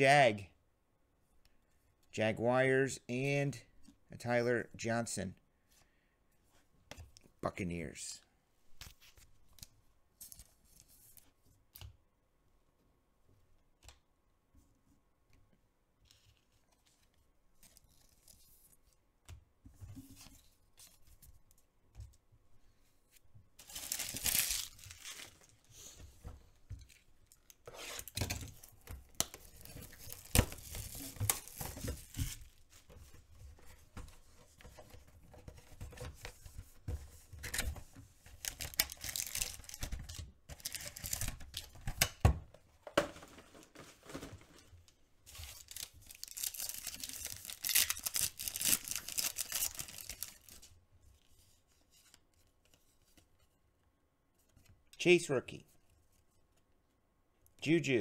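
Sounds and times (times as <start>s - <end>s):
plastic wrapper tearing and crinkling: 23.6s - 25.5s, 29.3s - 32.1s, 38.4s - 39.8s, 40.6s - 41.7s, 45.4s - 50.6s.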